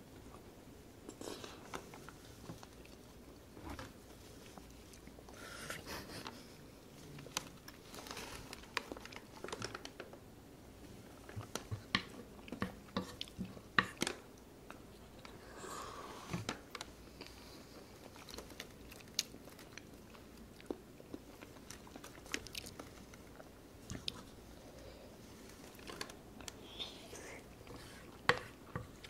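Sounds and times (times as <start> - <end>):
chewing food: 16.6 - 26.6.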